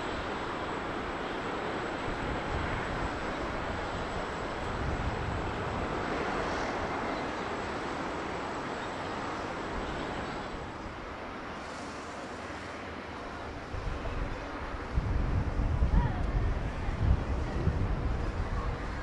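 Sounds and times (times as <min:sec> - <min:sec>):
jet engines rumbling: 0:00.0 - 0:19.0.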